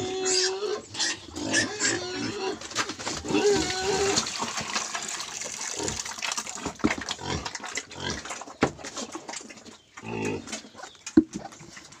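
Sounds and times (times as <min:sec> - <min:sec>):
piglets grunting: 0:00.0 - 0:04.3
wet slop poured from bucket: 0:02.7 - 0:07.9.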